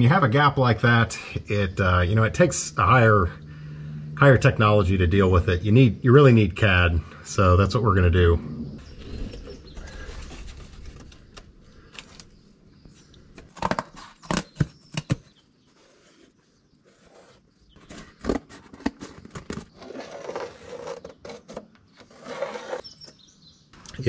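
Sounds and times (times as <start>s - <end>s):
cardboard rustling: 8.8s - 12.4s, 13.3s - 23.1s
cardboard scraping on steel: 13.6s - 23.1s.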